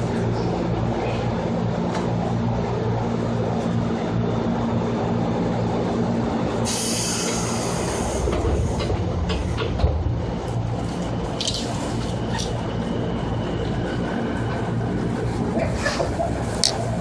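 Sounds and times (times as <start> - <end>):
train interior hum and rumble: 0.0 - 17.0
air hiss: 6.6 - 8.8.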